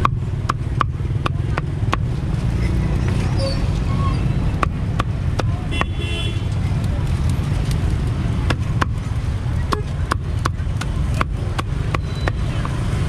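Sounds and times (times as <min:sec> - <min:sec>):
cleaver chopping on wooden block: 0:00.0 - 0:02.1, 0:04.6 - 0:06.0, 0:08.4 - 0:09.0, 0:09.6 - 0:12.8
street traffic rumble: 0:00.0 - 0:13.0.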